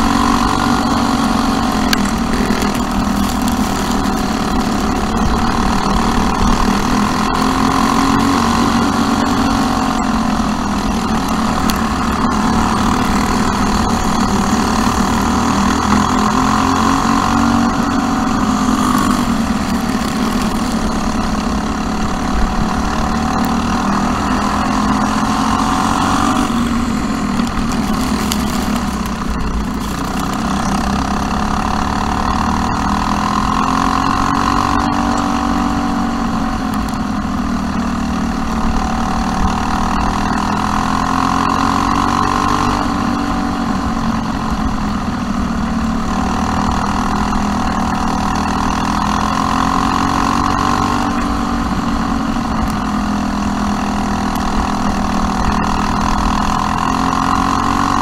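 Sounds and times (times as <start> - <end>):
kart engine revving: 0.0 - 58.0.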